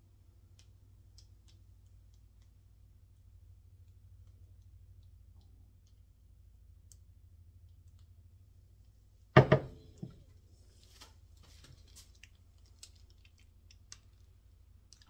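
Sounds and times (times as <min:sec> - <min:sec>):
faint low room hum: 0:00.0 - 0:15.0
canvas frame knocking on table: 0:09.4 - 0:10.2.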